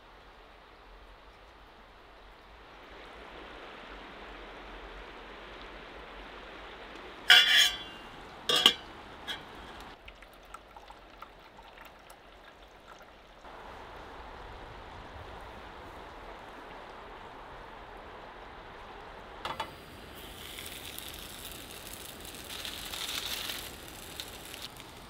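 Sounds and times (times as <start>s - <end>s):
flowing water rushing: 0.0s - 25.0s
metal kettle lid clanking: 7.3s - 9.6s.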